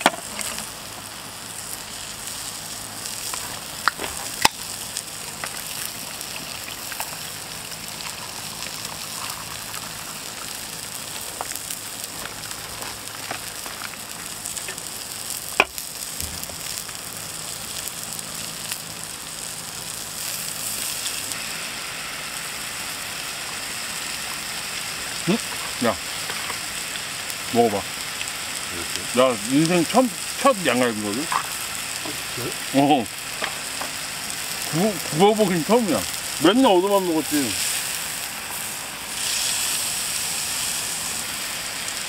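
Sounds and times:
meat sizzling in a pan: 0.0s - 42.0s.

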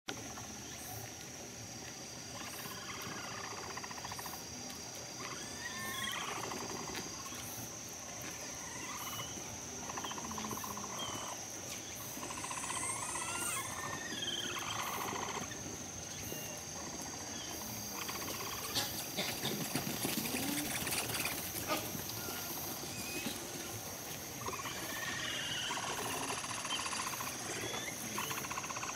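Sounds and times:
capybaras calling in chorus: 5.2s - 7.0s, 12.2s - 15.6s, 24.4s - 28.9s.

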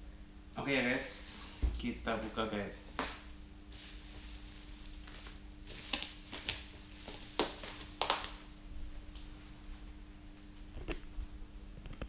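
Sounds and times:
bubble wrap crackling: 3.0s - 8.6s.

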